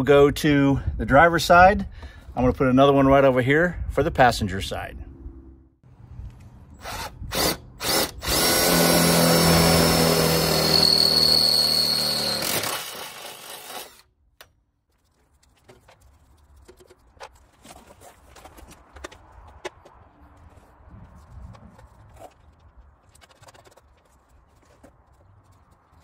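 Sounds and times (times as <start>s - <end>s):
cordless drill boring metal: 6.8s - 14.0s.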